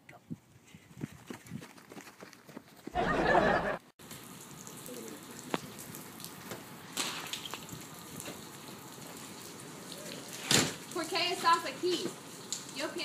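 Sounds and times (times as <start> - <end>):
steady outdoor background hiss: 2.6 - 13.0.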